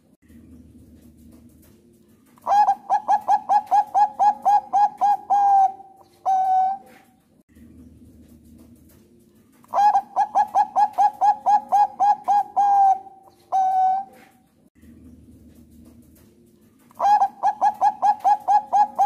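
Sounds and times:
dove cooing: 0:02.4 - 0:07.2, 0:09.7 - 0:14.4, 0:16.9 - 0:19.0.

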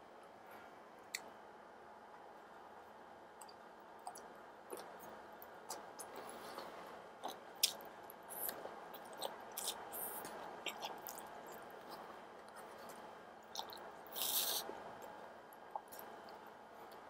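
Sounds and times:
wet chewing: 0:05.7 - 0:12.1, 0:13.5 - 0:14.7
slurping noodles: 0:13.6 - 0:14.7.

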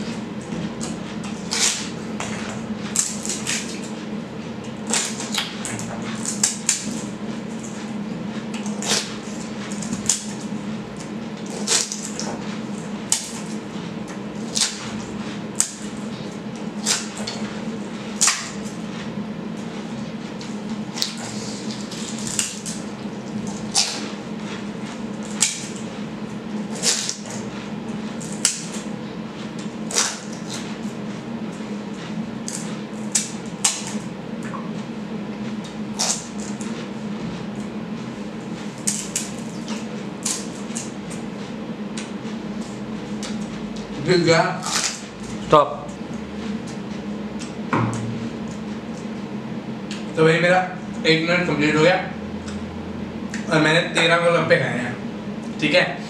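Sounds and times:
crunching and slurping: 0:00.0 - 0:34.1, 0:44.6 - 0:45.5.

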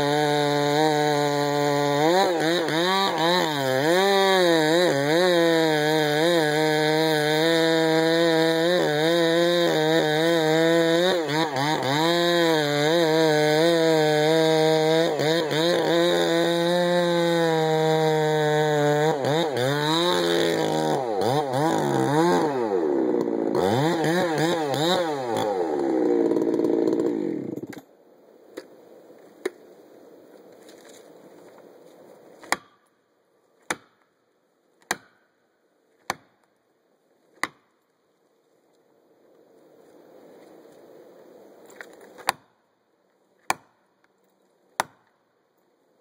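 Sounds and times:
chainsaw revving: 0:00.0 - 0:27.7
axe striking wedge: 0:32.4 - 0:32.8, 0:33.6 - 0:34.1, 0:34.8 - 0:35.2, 0:36.0 - 0:36.4, 0:37.4 - 0:37.7, 0:43.4 - 0:43.8, 0:44.8 - 0:45.1.

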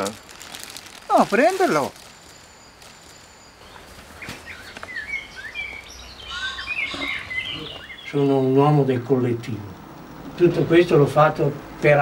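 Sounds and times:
small birds chirping: 0:00.0 - 0:11.8.

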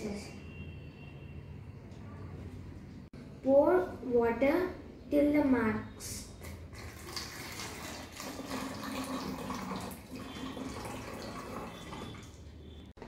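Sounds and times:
water pouring into plastic bottle: 0:06.7 - 0:12.4.

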